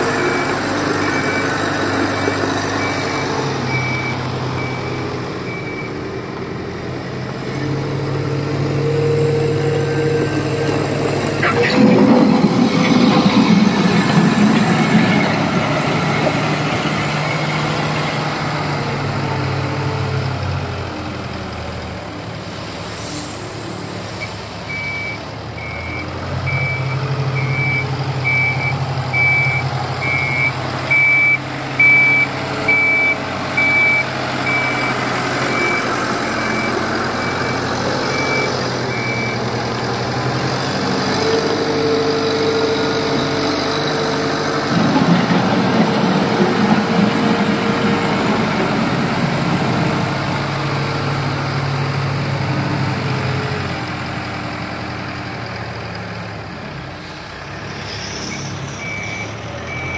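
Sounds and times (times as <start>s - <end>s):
diesel engine running: 0.0s - 59.9s
reverse alarm beeping: 2.2s - 6.0s, 24.2s - 39.4s, 58.3s - 59.9s.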